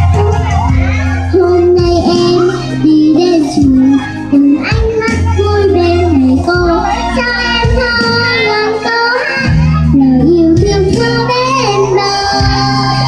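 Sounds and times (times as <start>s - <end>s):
instrumental backing music: 0.0s - 13.0s
girl singing into a microphone: 0.9s - 13.0s.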